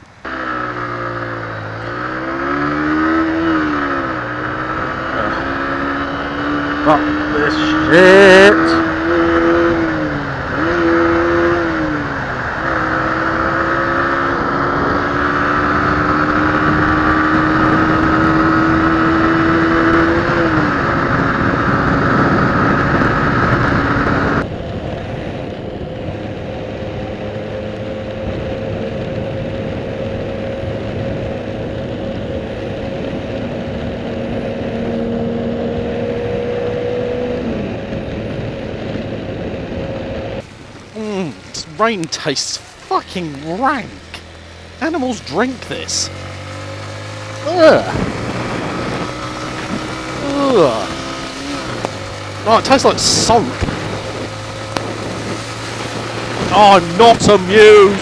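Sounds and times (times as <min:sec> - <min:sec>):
motorcycle engine running: 0:00.0 - 0:58.0
wind rushing: 0:01.1 - 0:27.2, 0:28.4 - 0:58.0
rain noise: 0:37.0 - 0:58.0.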